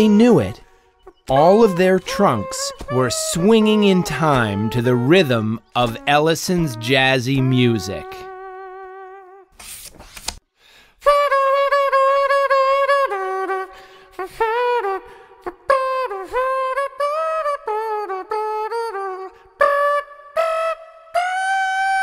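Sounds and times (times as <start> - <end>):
jazzy horn-like wind instrument: 1.6 - 9.6.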